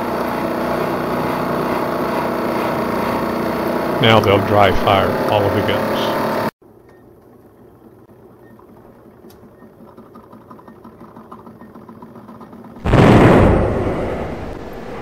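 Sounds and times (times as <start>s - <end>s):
faint mechanical whir: 2.2s - 15.0s
cannon boom: 12.8s - 15.0s.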